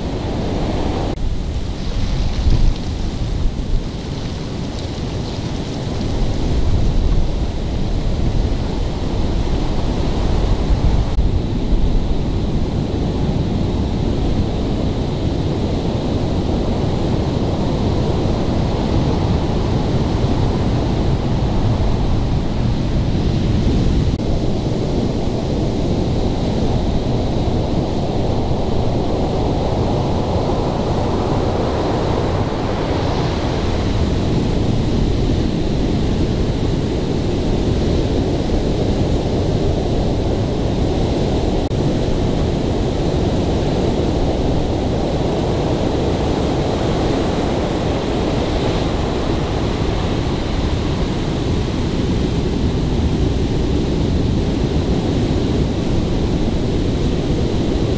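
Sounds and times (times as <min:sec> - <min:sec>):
surf crashing: 0:00.0 - 0:11.9
wind buffeting microphone: 0:00.0 - 0:57.9.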